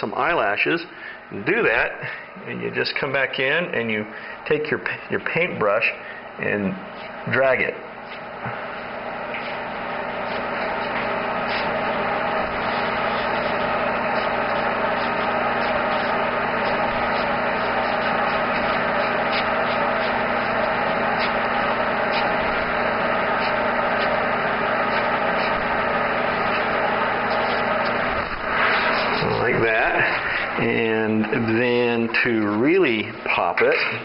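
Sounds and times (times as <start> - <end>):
air compressor motor hum: 0.0 - 34.0.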